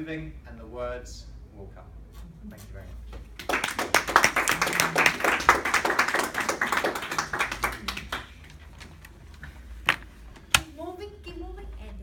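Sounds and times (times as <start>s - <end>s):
audience applauding: 3.4s - 8.5s.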